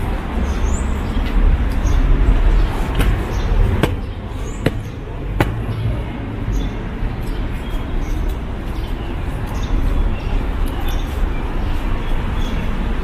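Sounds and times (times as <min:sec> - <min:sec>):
footsteps on hard walkway: 0:02.8 - 0:05.7.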